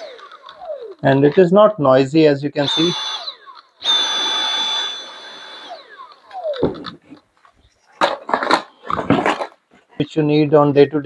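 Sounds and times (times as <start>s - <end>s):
handheld vacuum motor whine: 0.0s - 1.0s, 2.6s - 7.0s.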